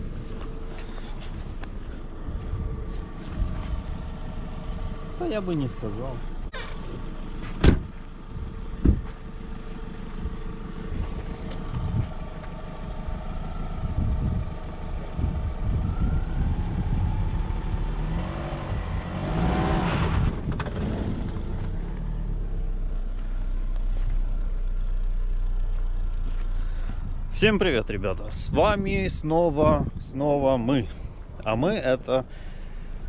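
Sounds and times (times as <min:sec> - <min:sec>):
car door shutting: 0:06.5 - 0:08.0
car engine revving: 0:15.3 - 0:22.5.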